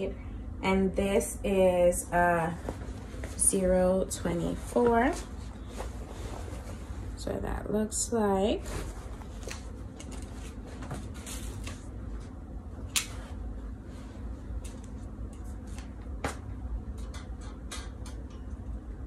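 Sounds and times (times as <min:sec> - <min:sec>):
steady low hum: 0:00.0 - 0:19.0
fabric rustling: 0:04.4 - 0:07.2, 0:08.4 - 0:12.3.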